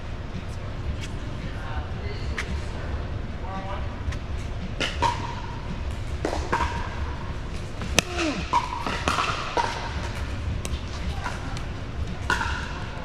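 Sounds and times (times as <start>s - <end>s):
paddles striking pickleball: 7.8s - 13.0s.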